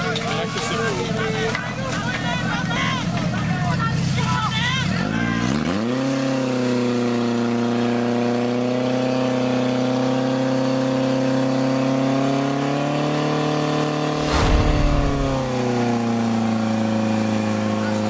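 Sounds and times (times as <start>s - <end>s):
low rumbling noise: 14.2s - 16.0s.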